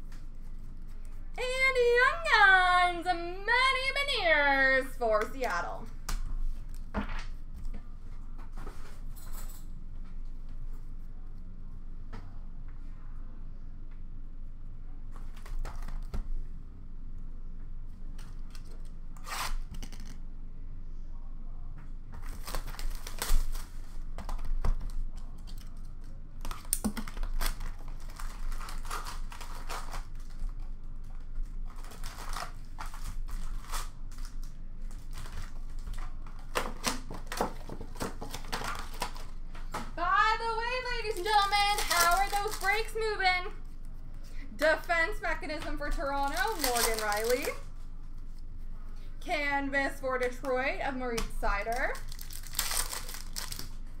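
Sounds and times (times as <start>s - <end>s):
foil packs crinkling and tearing: 22.2s - 24.0s, 26.4s - 39.4s, 40.9s - 43.1s, 46.1s - 47.7s, 51.6s - 53.9s.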